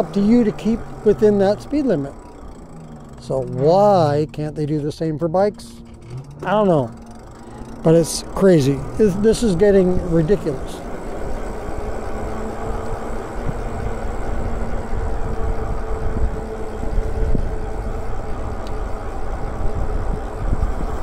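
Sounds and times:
electric motor whine: 0:00.0 - 0:21.0
wind rumble on microphone: 0:11.9 - 0:21.0.

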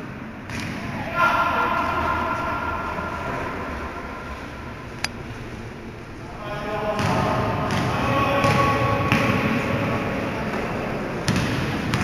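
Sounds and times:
players' movement and voices: 0:00.1 - 0:12.0
basketball bounces: 0:07.0 - 0:09.6, 0:11.3 - 0:12.0.

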